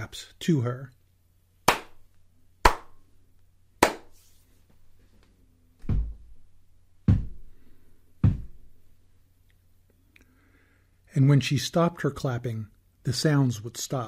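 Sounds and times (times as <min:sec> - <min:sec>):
hand claps: 0:01.7 - 0:02.0, 0:02.6 - 0:03.0, 0:03.8 - 0:04.2
dull knocks: 0:05.8 - 0:06.3, 0:07.1 - 0:07.4, 0:08.2 - 0:08.6.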